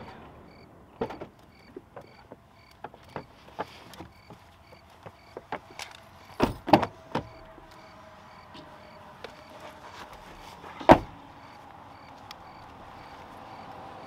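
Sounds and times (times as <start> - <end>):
knocks and rustles: 0.0 - 7.7, 9.3 - 11.6
truck door slamming: 6.3 - 7.7, 10.2 - 11.6.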